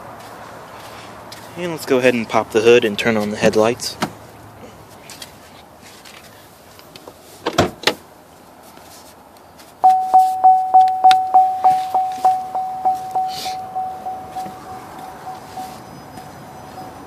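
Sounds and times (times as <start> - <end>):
car warning chime: 9.8 - 17.0.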